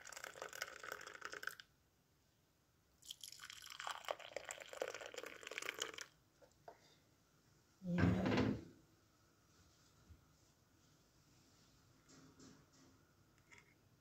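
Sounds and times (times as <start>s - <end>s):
liquid pouring and splashing: 0.0s - 1.6s, 3.0s - 6.1s.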